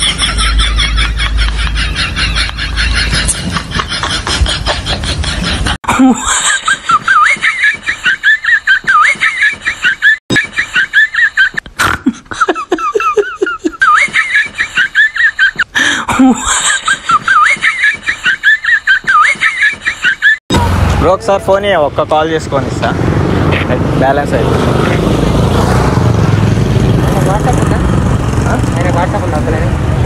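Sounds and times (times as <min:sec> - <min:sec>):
high-pitched laughter: 0:00.0 - 0:20.4.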